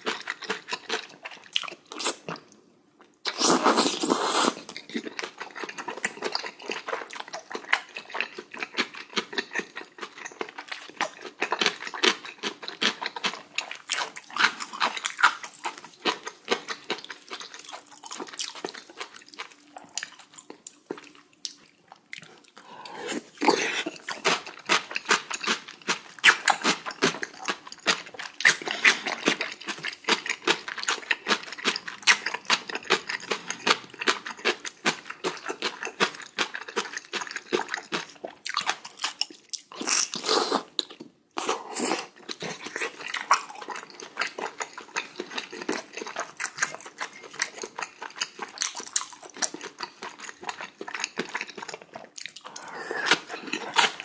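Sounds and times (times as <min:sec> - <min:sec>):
person slurping and chewing: 0:03.2 - 0:54.0.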